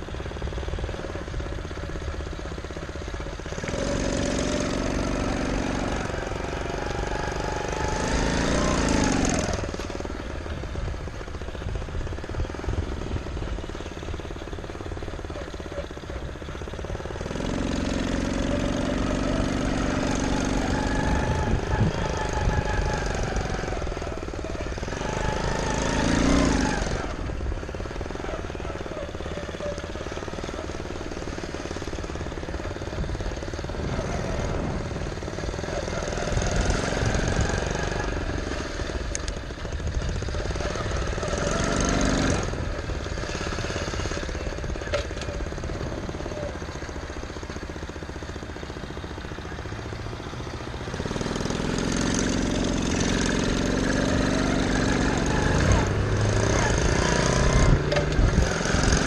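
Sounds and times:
small gas engine revving: 0:00.0 - 0:59.0
wind rumble on microphone: 0:20.9 - 0:24.0, 0:32.9 - 0:38.2, 0:57.4 - 0:59.0.

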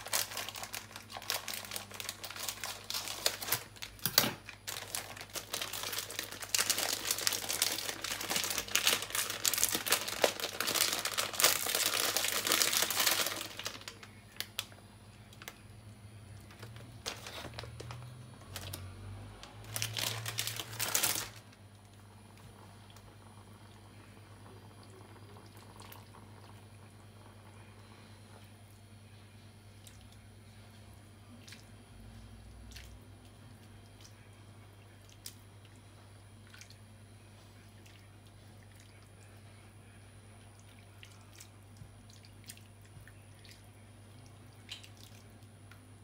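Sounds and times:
plastic packet crinkling: 0:00.0 - 0:14.8, 0:16.5 - 0:21.6
faint low hum: 0:00.0 - 0:46.0.

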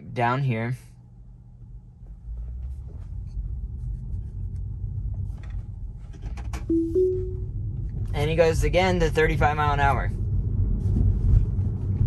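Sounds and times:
road and tyre rumble: 0:01.5 - 0:12.0
short chime: 0:06.7 - 0:07.5.

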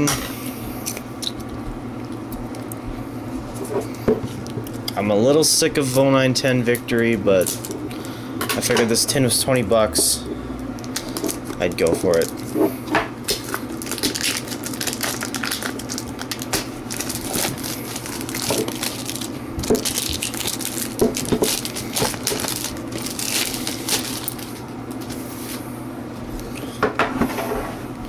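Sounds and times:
plastic wrap crinkling: 0:06.9 - 0:08.1, 0:10.8 - 0:25.6.

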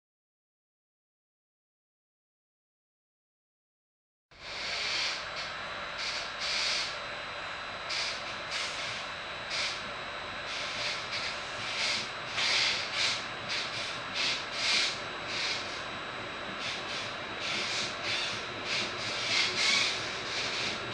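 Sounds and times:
train rolling rumble: 0:08.2 - 0:20.9.

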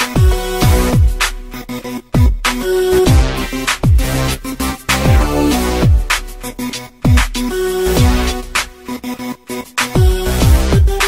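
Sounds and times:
held steady synth notes: 0:00.0 - 0:09.1
deep kick drum hits: 0:03.1 - 0:04.1, 0:05.1 - 0:06.1, 0:07.1 - 0:07.4.

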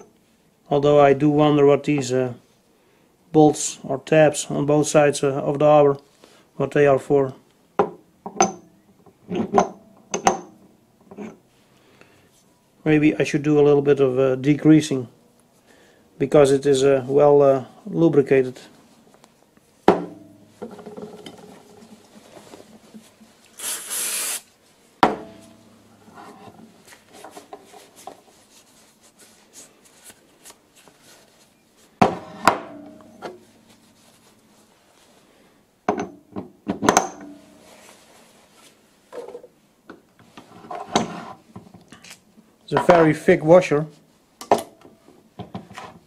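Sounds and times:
short hiss: 0:23.5 - 0:24.6
metal rubbing and scraping: 0:25.9 - 0:28.1.

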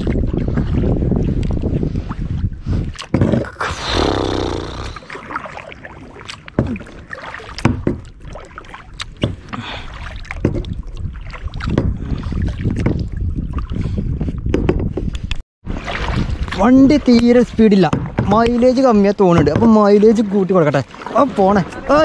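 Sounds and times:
wind rumbling on microphone: 0:00.0 - 0:05.0, 0:09.0 - 0:19.7
paddle splashing water: 0:00.0 - 0:13.8, 0:15.7 - 0:22.0.

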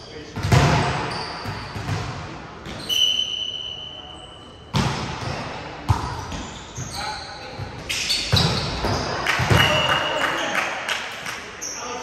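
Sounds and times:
volleyball thumps echoing: 0:07.6 - 0:09.9.

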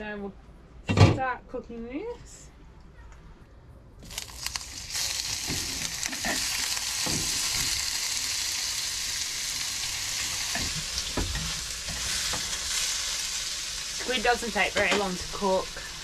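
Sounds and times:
squid sizzling in hot oil: 0:04.0 - 0:16.0.

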